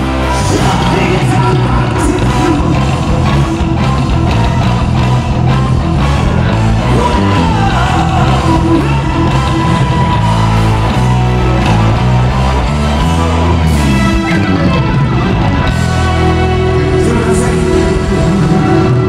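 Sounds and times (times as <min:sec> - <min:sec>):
person singing: 0:00.0 - 0:04.1, 0:06.8 - 0:10.4, 0:15.9 - 0:19.0
live rock band playing: 0:00.0 - 0:19.0.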